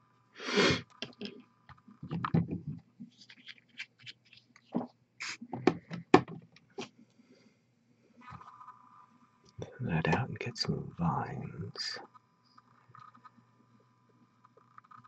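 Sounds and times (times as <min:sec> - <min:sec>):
rustling: 0:02.0 - 0:05.5.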